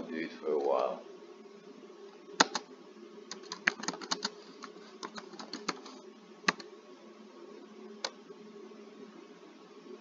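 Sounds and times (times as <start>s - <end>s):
computer keyboard typing: 2.4s - 2.6s, 3.3s - 6.7s.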